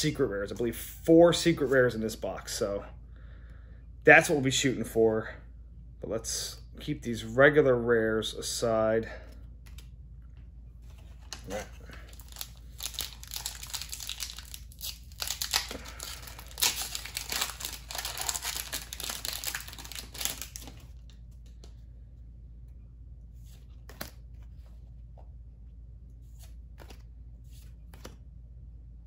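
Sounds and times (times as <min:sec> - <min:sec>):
soft clicks of cards handled: 0:09.3 - 0:11.6, 0:20.9 - 0:21.9, 0:26.1 - 0:28.3
wrapper tearing and crinkling: 0:11.3 - 0:21.0.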